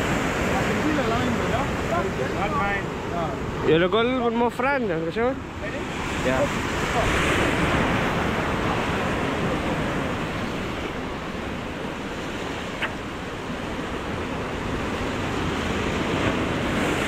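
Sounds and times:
sea surf washing: 0.0 - 17.0
wind buffeting microphone: 5.4 - 17.0.

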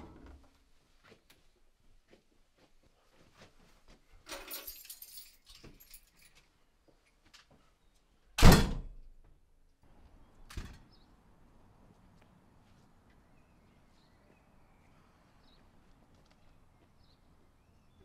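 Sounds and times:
keys jangling: 4.3 - 6.4
front door banging shut: 8.4 - 9.0.

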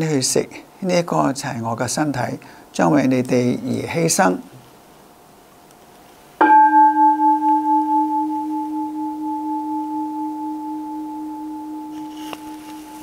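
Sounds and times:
bowl bell ringing: 6.4 - 13.0.

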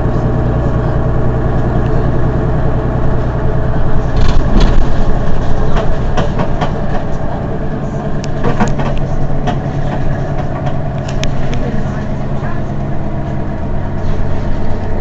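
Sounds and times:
bus engine idling: 0.0 - 15.0
sharp clicks and knocks: 4.2 - 7.1, 8.2 - 11.6.

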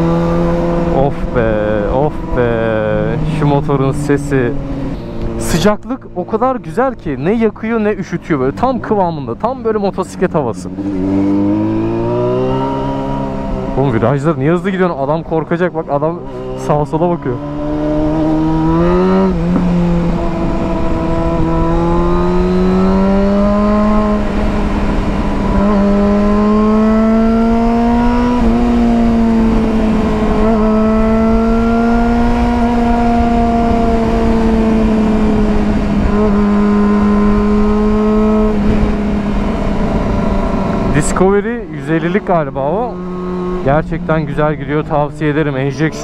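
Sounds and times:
motorcycle engine revving: 0.0 - 6.5, 7.3 - 46.0
wind and road noise: 0.0 - 46.0.

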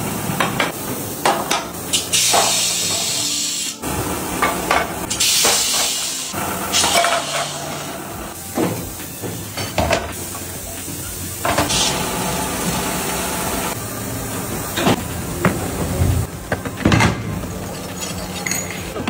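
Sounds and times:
compressed air hiss: 1.9 - 3.8, 5.1 - 10.5.

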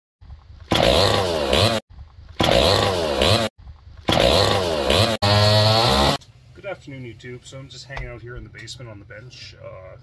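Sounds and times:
chainsaw engine revving: 0.7 - 1.8, 2.4 - 6.2.

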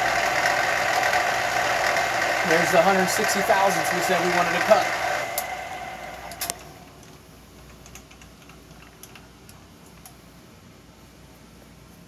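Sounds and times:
mill-drill running: 0.0 - 6.6.

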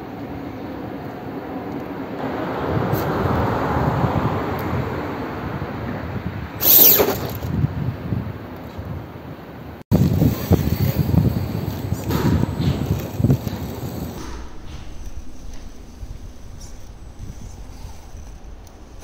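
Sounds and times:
toy truck crashing onto stones: 6.6 - 7.6
knocks of truck tumbling: 6.6 - 7.8.

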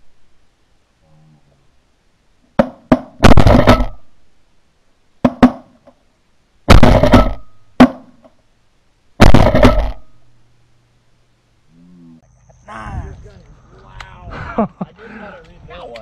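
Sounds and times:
shotgun shots echoing: 3.2 - 4.1, 6.7 - 8.1, 9.2 - 10.1.

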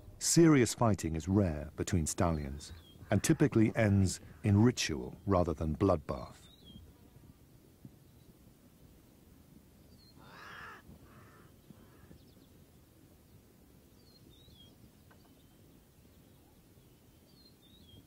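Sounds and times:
harsh animal call: 3.0 - 4.5
faint high bird chirps: 6.4 - 7.0, 14.0 - 18.0.

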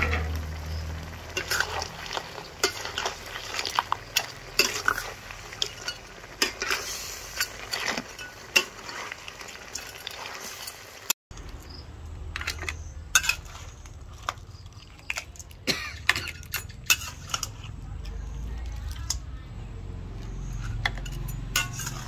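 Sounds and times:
metal spatula scraping a wok: 0.0 - 11.1, 12.3 - 15.3, 16.0 - 18.3, 20.2 - 22.0
food sizzling: 0.0 - 19.2, 20.3 - 22.0
metal spoon clinking against bowl: 20.6 - 22.0.

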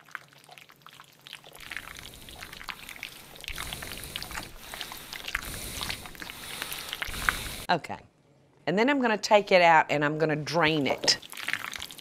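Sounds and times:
hiss of boiling water: 1.6 - 7.7
potatoes splashing into water: 11.0 - 12.0.

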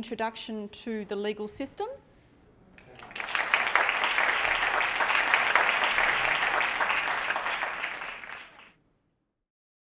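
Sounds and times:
audience applauding: 2.8 - 8.7.

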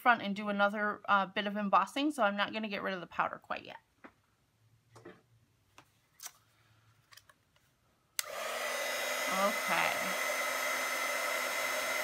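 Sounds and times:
heat gun blowing: 8.2 - 12.0.

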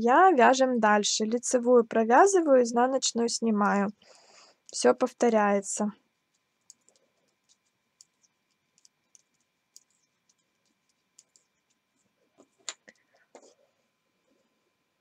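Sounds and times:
knitting clatter: 6.2 - 13.5
knitting needles clicking: 6.3 - 11.8.

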